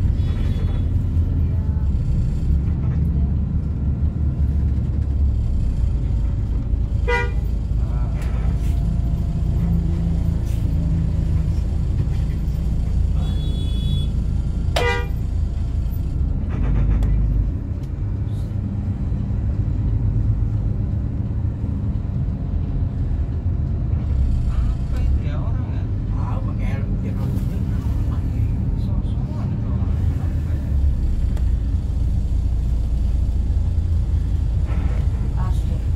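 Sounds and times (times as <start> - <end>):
street traffic rumble: 0.0 - 35.9
vehicle horn toots: 7.0 - 7.4, 13.2 - 14.1, 14.8 - 15.2.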